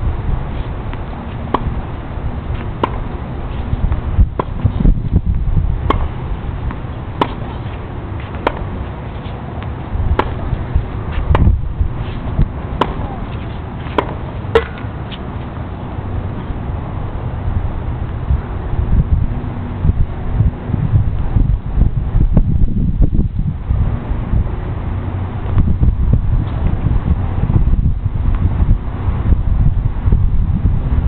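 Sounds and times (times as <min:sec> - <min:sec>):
wind rumble on microphone: 0:00.0 - 0:31.0
tennis ball struck by racket: 0:00.6 - 0:01.9, 0:02.5 - 0:15.6
tennis ball bouncing on court: 0:00.9 - 0:01.9, 0:02.5 - 0:15.3.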